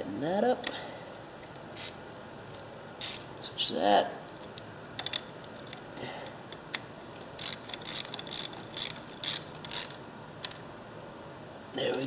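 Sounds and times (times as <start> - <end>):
socket ratchet clicking: 1.4 - 3.3, 6.6 - 10.6.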